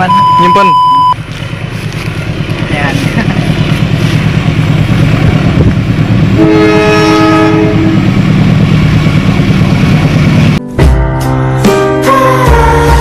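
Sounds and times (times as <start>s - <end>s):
low rumble: 0.2s - 10.6s
diesel locomotive horn: 6.3s - 8.4s.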